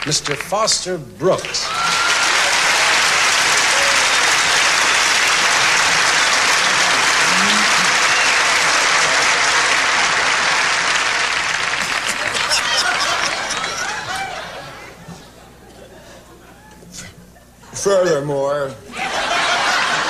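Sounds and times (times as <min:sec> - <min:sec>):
audience applauding: 0:00.0 - 0:00.5, 0:01.4 - 0:14.8.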